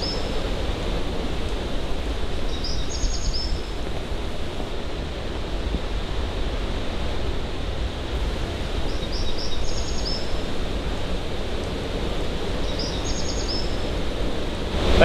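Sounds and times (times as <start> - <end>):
high chirping calls: 0.0 - 0.5, 2.3 - 3.9, 8.8 - 10.4, 12.6 - 14.0
waterfall rushing: 0.0 - 15.0.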